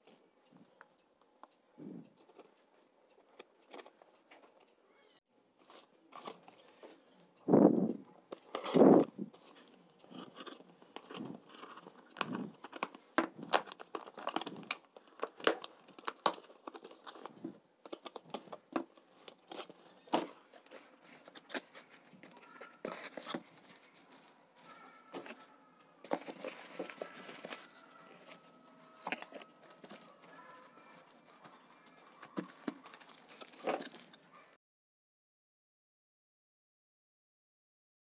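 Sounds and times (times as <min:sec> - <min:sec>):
bubble wrap crackling and rustling: 0:08.4 - 0:34.2.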